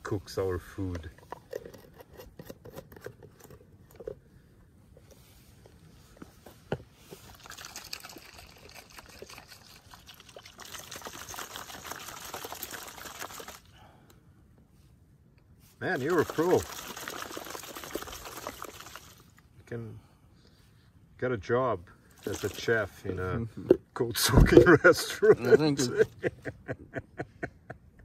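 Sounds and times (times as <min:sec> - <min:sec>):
water trickling into plastic jar: 0:07.1 - 0:13.7, 0:15.8 - 0:19.5, 0:22.1 - 0:22.9.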